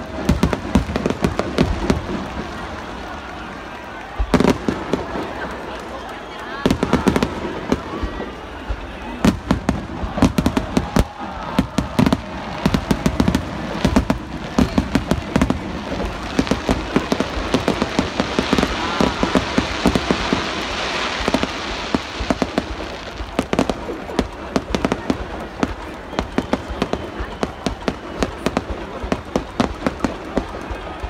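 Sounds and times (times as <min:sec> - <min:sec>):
firework crackling hiss: 0:06.7 - 0:30.8.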